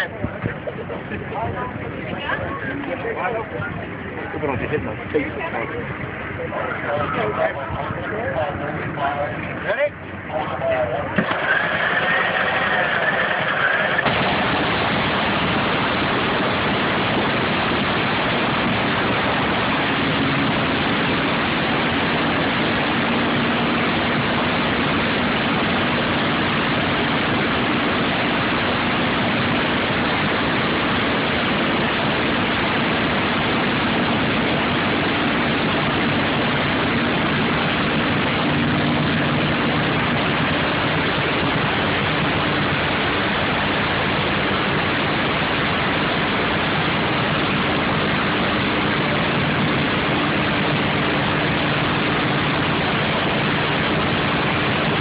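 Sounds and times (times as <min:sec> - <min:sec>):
race car engine idling: 0:00.0 - 0:55.0.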